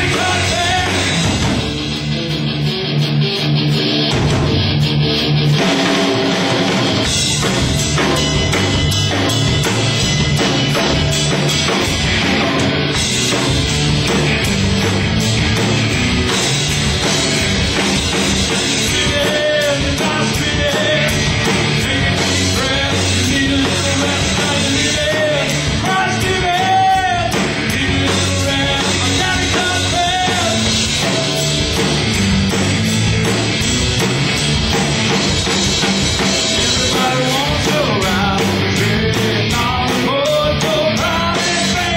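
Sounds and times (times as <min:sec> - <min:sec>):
person singing: 0:00.0 - 0:01.3, 0:18.8 - 0:31.1, 0:36.6 - 0:41.9
bass guitar: 0:00.0 - 0:41.9
drum kit: 0:00.0 - 0:41.9
electric guitars: 0:00.0 - 0:41.9.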